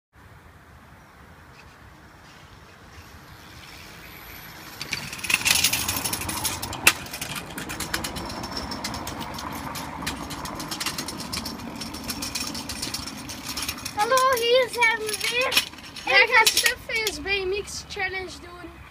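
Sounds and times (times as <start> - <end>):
wheels rattling over brick paving: 2.2 - 18.8.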